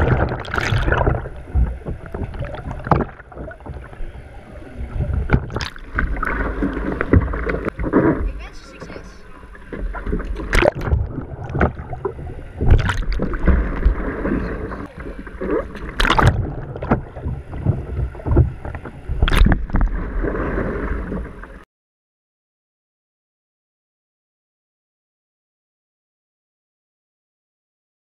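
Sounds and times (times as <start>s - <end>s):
sharp water splashes: 0.0s - 1.7s, 5.2s - 8.5s, 9.7s - 21.2s
water sloshing and gurgling: 0.0s - 21.7s.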